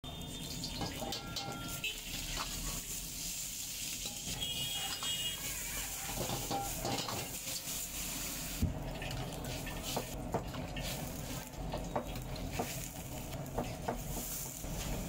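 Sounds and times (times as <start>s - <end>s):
vegetables sizzling in a wok: 0.0s - 15.0s
liquid splashing in hot wok: 0.1s - 15.0s
ladle knocking against wok: 13.5s - 14.3s.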